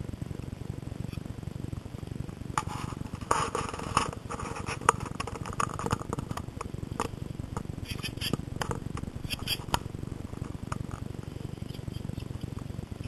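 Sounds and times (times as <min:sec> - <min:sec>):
steady low rumble: 0:00.0 - 0:13.0
rustling of dry leaves: 0:01.0 - 0:13.0.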